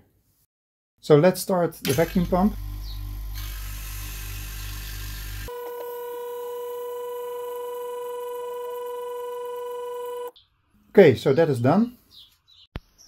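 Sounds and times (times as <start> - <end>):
vacuum pump motor humming: 1.9 - 10.3.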